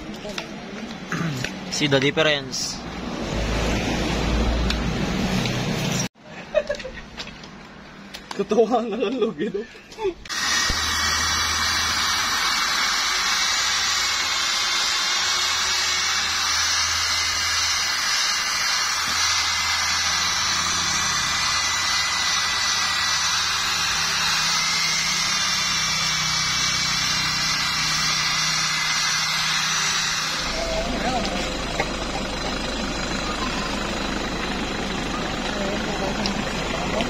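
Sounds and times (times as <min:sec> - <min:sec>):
electric buffer running: 0:10.3 - 0:37.0.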